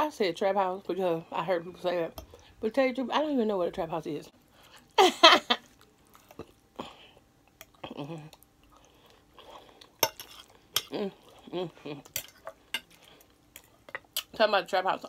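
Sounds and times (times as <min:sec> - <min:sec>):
chewing: 0:05.6 - 0:14.4
fork scraping on plate: 0:10.0 - 0:10.9.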